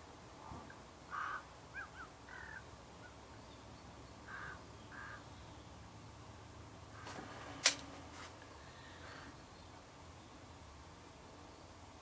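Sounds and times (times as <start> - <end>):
harsh bird caws: 1.1 - 2.7, 4.2 - 5.3.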